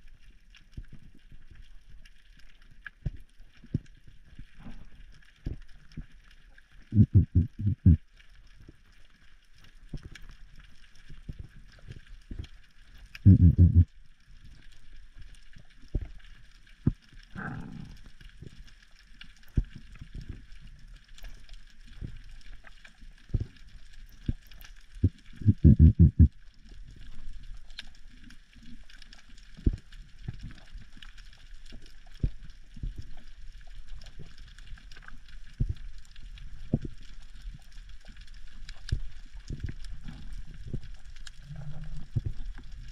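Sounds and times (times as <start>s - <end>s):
underwater clicks and crackles: 0.0s - 42.9s
rapid low pulses: 6.9s - 8.0s, 13.2s - 13.9s, 25.0s - 26.3s.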